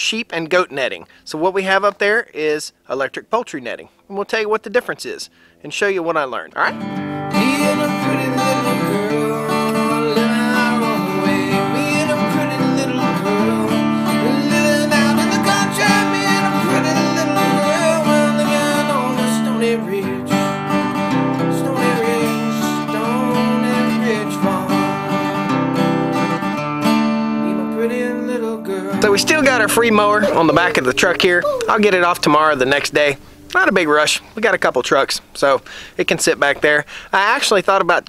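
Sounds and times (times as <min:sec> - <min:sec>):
acoustic guitar music: 0:06.4 - 0:37.6.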